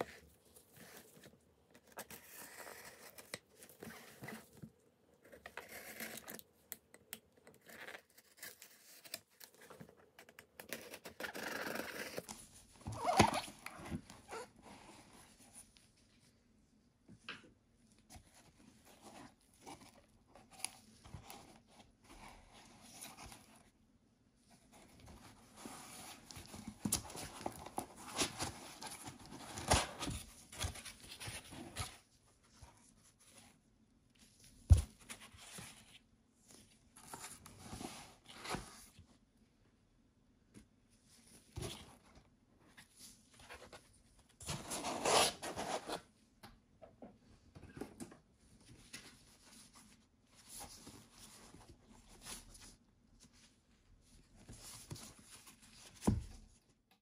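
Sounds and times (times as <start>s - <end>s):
cardboard rustling and crinkling: 0.0s - 6.6s, 24.5s - 39.2s, 47.5s - 56.8s.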